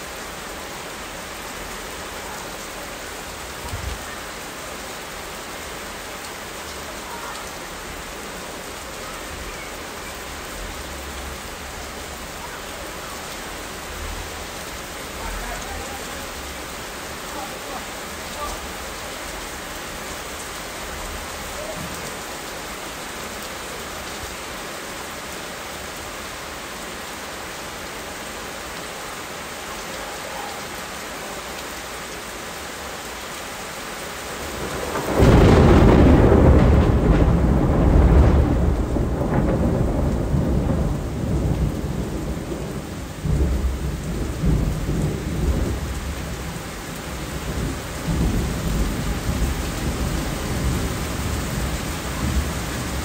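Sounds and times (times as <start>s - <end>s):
steady rain: 0.0s - 53.0s
thunderclap and low rumble: 34.6s - 46.2s.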